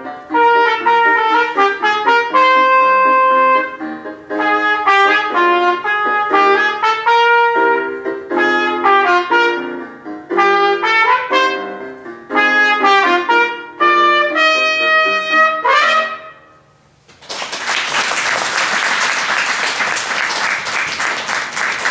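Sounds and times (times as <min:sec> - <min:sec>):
solo trumpet: 0:00.3 - 0:16.7
audience applauding: 0:17.1 - 0:21.9.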